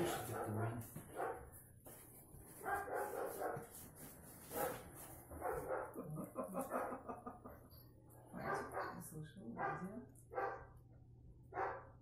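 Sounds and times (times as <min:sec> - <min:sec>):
dog barking: 0:00.0 - 0:01.5, 0:02.6 - 0:03.7, 0:04.5 - 0:04.8, 0:05.4 - 0:06.0, 0:08.4 - 0:09.0, 0:09.6 - 0:10.8, 0:11.5 - 0:12.0.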